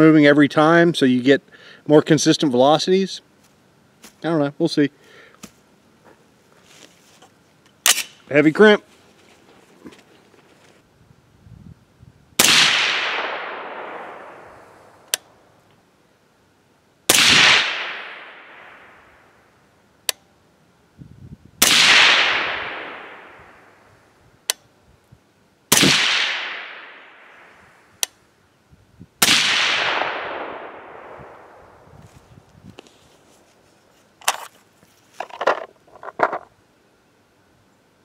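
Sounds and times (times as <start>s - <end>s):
sharp rifle click: 7.8s - 8.2s, 12.4s - 15.4s, 28.0s - 28.2s
gunshot echo: 12.4s - 15.1s, 17.1s - 19.0s, 21.6s - 23.8s, 25.7s - 27.6s, 29.2s - 31.8s
suppressed rifle shots: 12.4s - 15.4s, 17.1s - 19.1s, 21.6s - 23.8s, 25.7s - 27.6s, 29.2s - 31.8s.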